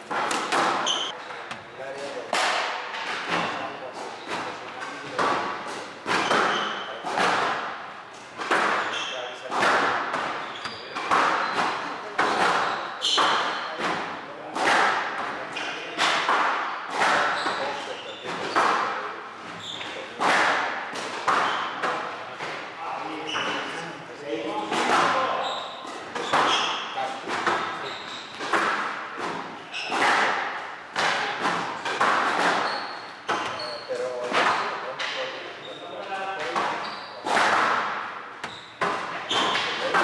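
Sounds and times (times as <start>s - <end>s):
court shoes squeaking: 0.0s - 2.1s, 3.0s - 14.0s, 15.4s - 20.4s, 21.0s - 24.0s, 24.7s - 40.0s
squash ball hitting rackets and walls: 0.0s - 23.8s, 24.4s - 35.4s, 36.0s - 40.0s.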